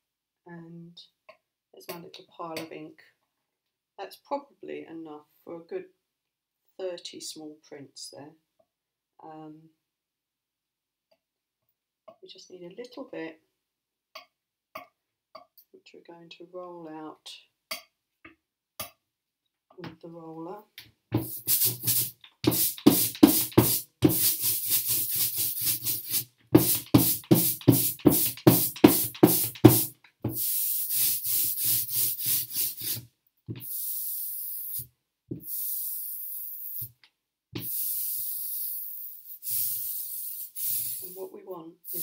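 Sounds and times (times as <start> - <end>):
ink roller rolling through ink: 21.2 - 33.0.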